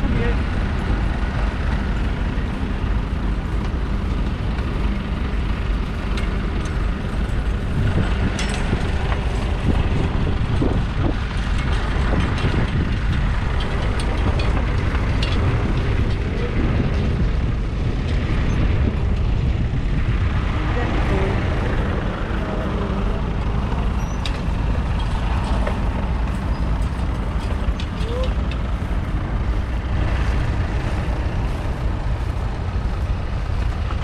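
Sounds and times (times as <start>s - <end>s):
steady low rumble: 0.0s - 34.0s.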